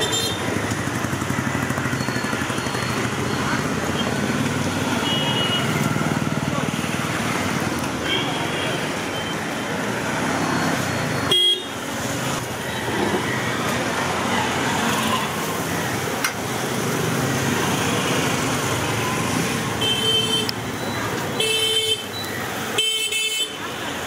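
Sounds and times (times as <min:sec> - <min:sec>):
street traffic: 0:00.0 - 0:24.0
car horns honking: 0:11.3 - 0:11.8.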